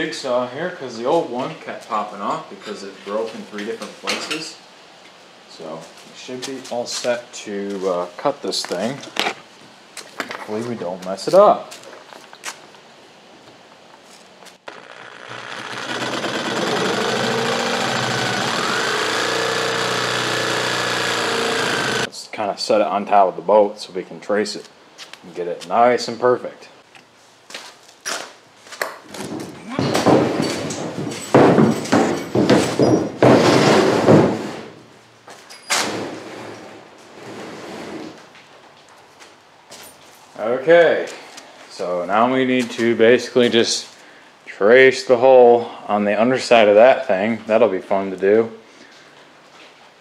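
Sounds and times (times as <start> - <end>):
electric jigsaw cutting plywood: 14.7 - 22.1
wood knocking and scraping on metal: 29.2 - 34.5.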